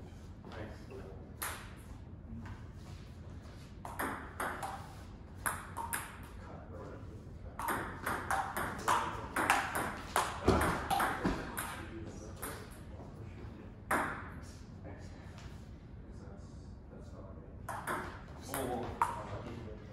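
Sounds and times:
ball bouncing on table: 3.8s - 6.4s, 7.6s - 12.7s, 13.9s - 14.3s, 17.7s - 19.3s
ball hitting paddles: 7.6s - 11.8s.

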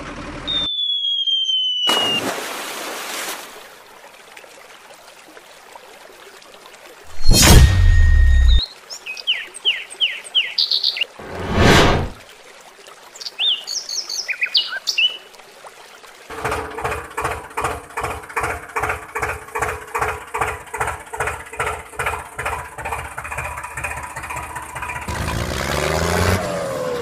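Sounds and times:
birds chirping: 7.1s - 11.8s, 13.2s - 15.3s
tractor engine chugging: 16.3s - 25.4s
engine revving: 23.4s - 27.0s.

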